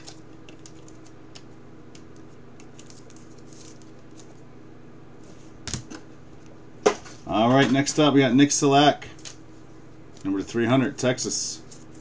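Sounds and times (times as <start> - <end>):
trading cards rustling in sleeves: 0.0 - 4.5
steady low hum: 0.0 - 12.0.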